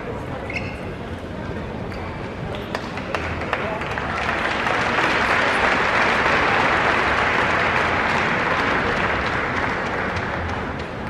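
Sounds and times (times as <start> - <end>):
crowd applauding: 2.7 - 11.0.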